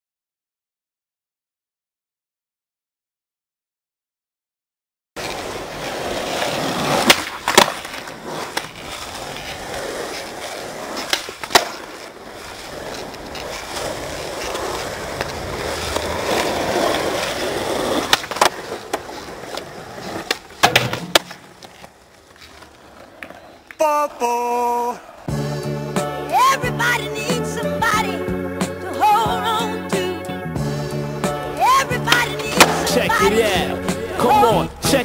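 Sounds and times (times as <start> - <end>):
skateboard clacking on ground: 5.2 - 23.8, 31.6 - 33.3
skateboard wheels rolling on asphalt: 5.2 - 25.4, 26.0 - 35.0.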